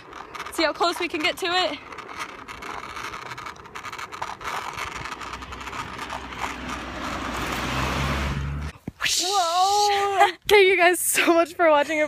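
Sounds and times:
wheel clicks over joints: 0.0s - 8.4s
wheels rolling on concrete: 0.0s - 12.0s
car driving by: 5.6s - 8.8s.

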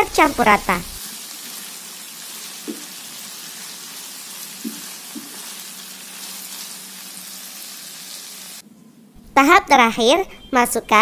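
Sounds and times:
food sizzling in oil: 0.0s - 8.6s.

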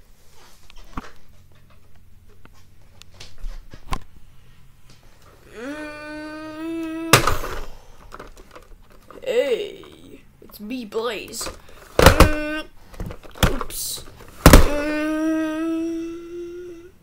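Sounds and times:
child wailing: 5.5s - 7.6s, 12.0s - 12.7s, 14.5s - 17.0s.

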